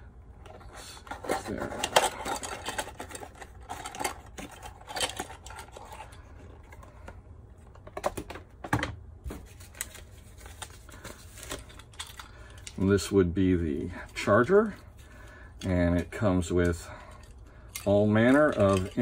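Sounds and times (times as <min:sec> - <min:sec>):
cardboard rustling: 0:00.5 - 0:12.2.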